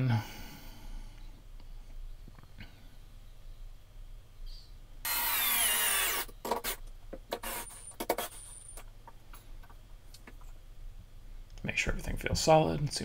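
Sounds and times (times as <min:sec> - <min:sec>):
cordless drill boring into wood: 0:05.1 - 0:06.8, 0:07.4 - 0:08.4.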